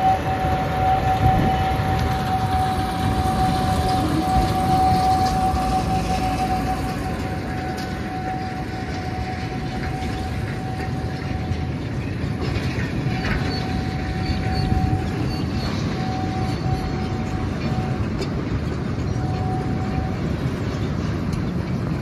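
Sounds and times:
high whine: 0.0 - 20.9
train wheels rumbling on rail: 0.0 - 22.0.

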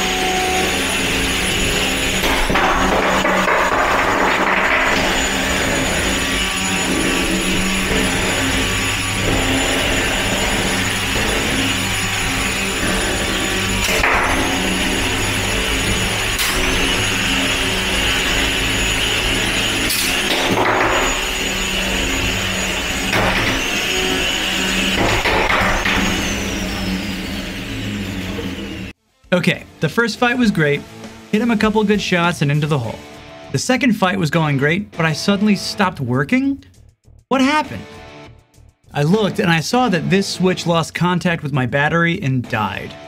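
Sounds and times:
spinning robot weapons whining: 0.0 - 28.9.

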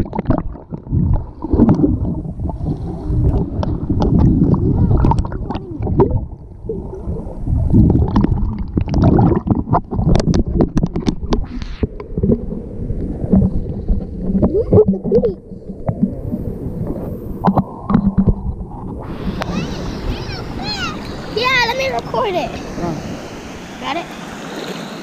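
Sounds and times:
knocks and splashes: 0.0 - 6.3, 7.7 - 12.5, 16.9 - 23.2
underwater gurgling and sloshing: 0.0 - 25.0
low rumble: 0.6 - 19.4.

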